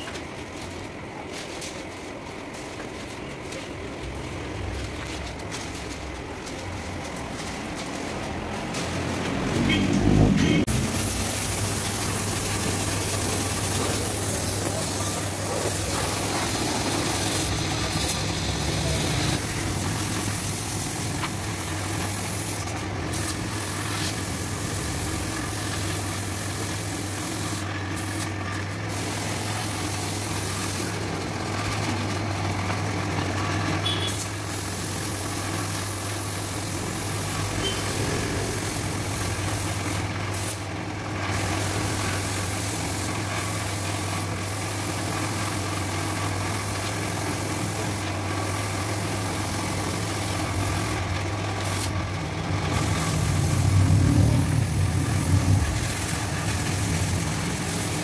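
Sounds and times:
paint spray gun hissing: 0:10.6 - 0:31.0, 0:33.8 - 0:40.7, 0:41.3 - 0:51.9, 0:52.7 - 0:53.6, 0:54.9 - 0:58.0.

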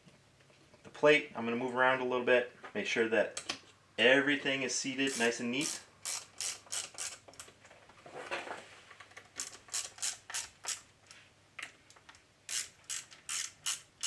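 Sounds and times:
ratchet clicking: 0:05.1 - 0:07.4, 0:09.4 - 0:10.9, 0:12.5 - 0:14.0.

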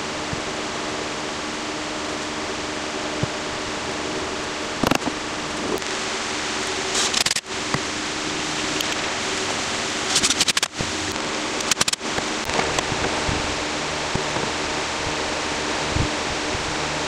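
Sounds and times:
steady hiss: 0:00.0 - 0:17.0
screwdriver rapid clicking: 0:07.0 - 0:07.4, 0:08.8 - 0:09.0, 0:10.1 - 0:12.0.

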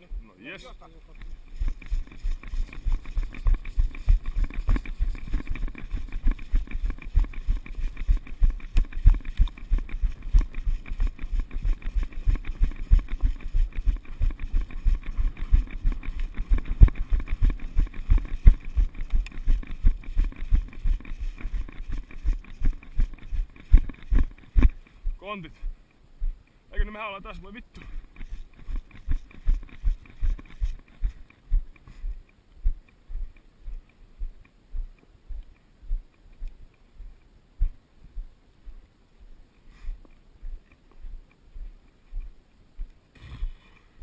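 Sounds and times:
running footsteps on gravel: 0:00.0 - 0:38.8
gear jolting camera: 0:01.3 - 0:24.8.

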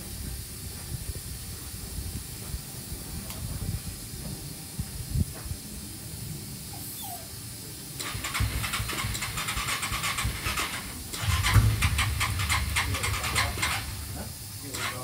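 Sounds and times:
electric starter cranking engine: 0:08.0 - 0:15.0
low rumble: 0:11.0 - 0:14.7.

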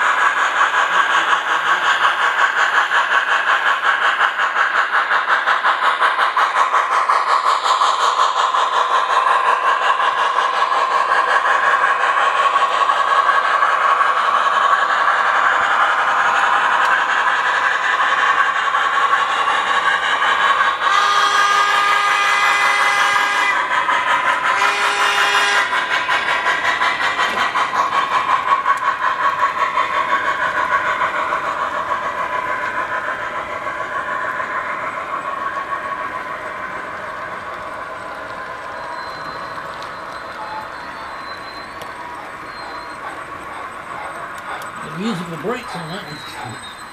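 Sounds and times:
model train running on track: 0:00.0 - 0:46.9
train whistle: 0:20.8 - 0:23.7, 0:24.5 - 0:25.8, 0:40.4 - 0:42.9.

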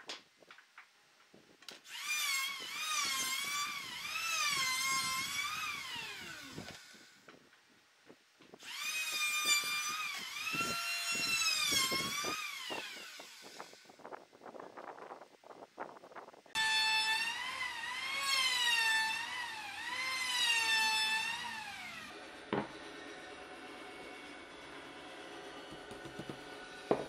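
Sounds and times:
power tool motor whining: 0:01.8 - 0:07.2, 0:08.6 - 0:14.0.

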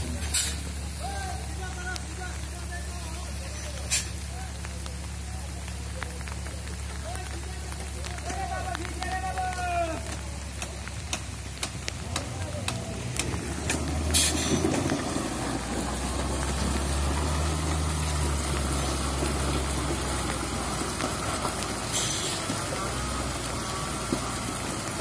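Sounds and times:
diesel truck engine running: 0:00.0 - 0:25.0
short air hisses: 0:00.2 - 0:00.8, 0:03.7 - 0:04.2, 0:14.1 - 0:14.7, 0:21.9 - 0:22.4.

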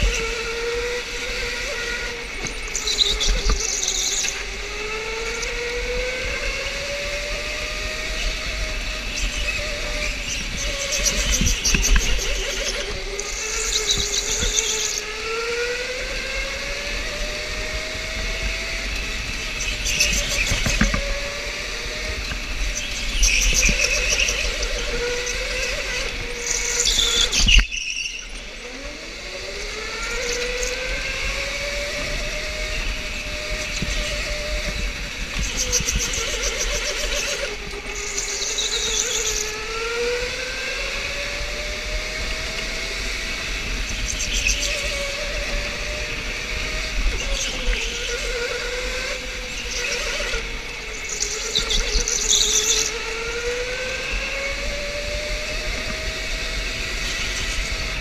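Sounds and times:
electric motor whining: 0:00.0 - 0:58.0.

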